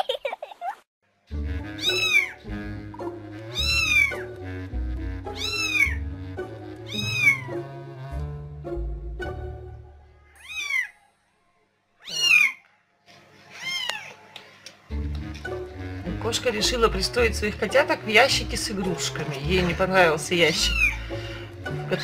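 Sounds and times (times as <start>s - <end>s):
background music: 1.1s - 10.4s, 14.5s - 22.0s
kitten mewing: 1.8s - 2.4s, 3.6s - 4.2s, 5.3s - 6.0s, 6.9s - 7.6s, 10.2s - 10.9s, 12.0s - 12.6s, 13.6s - 14.2s, 20.6s - 21.1s.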